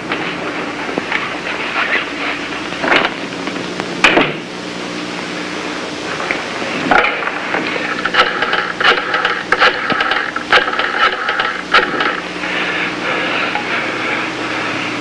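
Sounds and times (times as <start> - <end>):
steady hiss and hum: 0.0 - 15.0
rotary telephone dial clicking: 8.0 - 12.2.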